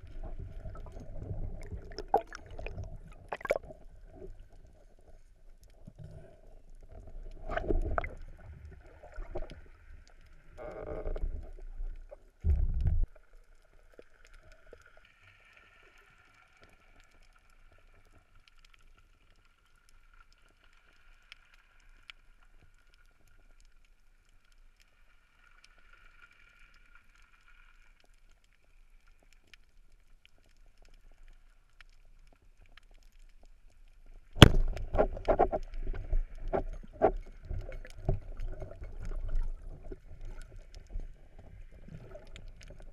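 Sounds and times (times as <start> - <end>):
underwater sloshing and knocks: 0.0 - 4.7, 5.8 - 13.3, 34.1 - 42.9.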